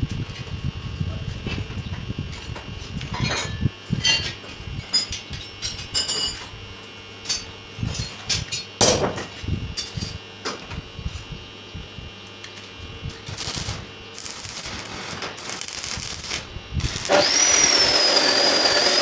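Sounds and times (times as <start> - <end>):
low crackling rumble: 13.1 - 17.1.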